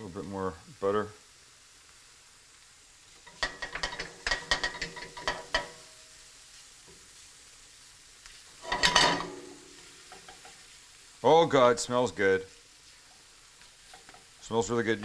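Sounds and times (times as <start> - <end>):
spatula scraping frying pan: 3.2 - 6.0, 8.5 - 10.8, 12.8 - 15.0.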